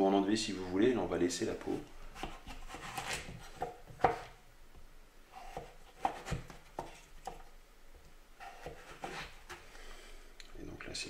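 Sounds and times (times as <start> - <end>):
knife cutting on a cutting board: 2.2 - 4.4, 5.3 - 7.4, 8.4 - 9.6.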